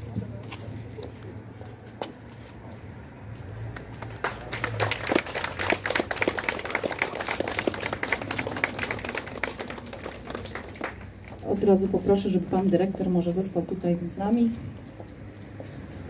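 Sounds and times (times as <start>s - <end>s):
crowd applauding: 4.0s - 11.4s.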